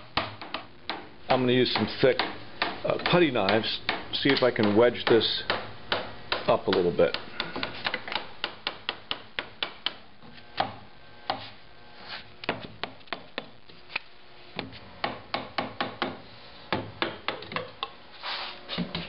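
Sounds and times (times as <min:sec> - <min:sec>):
brief rub: 0:18.1 - 0:19.0.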